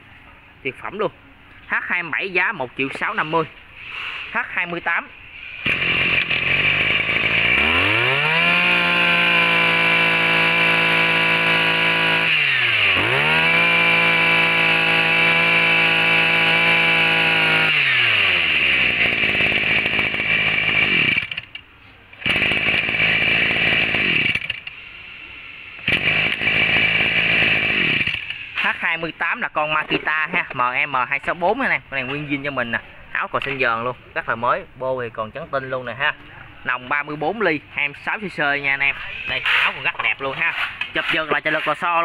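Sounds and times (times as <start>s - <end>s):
brush cutter engine revving: 5.4s - 21.6s, 22.2s - 24.7s, 25.8s - 29.0s, 38.8s - 42.0s.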